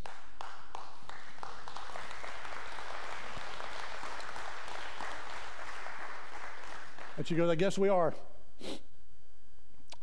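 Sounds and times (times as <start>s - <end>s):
crowd applauding: 0.0s - 7.7s.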